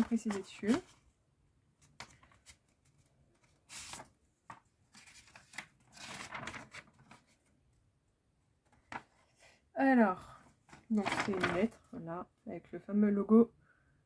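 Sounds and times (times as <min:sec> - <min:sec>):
paper envelope tearing: 0:05.0 - 0:06.9.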